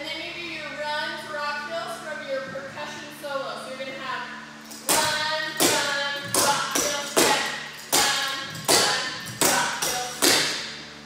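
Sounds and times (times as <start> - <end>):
tap shoes striking floor: 4.9 - 10.7.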